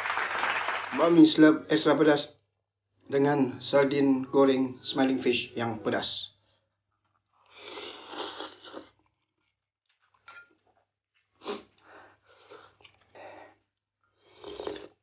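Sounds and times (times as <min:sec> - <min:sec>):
chewing and mouth sounds: 0:07.2 - 0:15.0
man slurping noodles: 0:07.5 - 0:09.0, 0:11.4 - 0:11.8, 0:14.2 - 0:15.0.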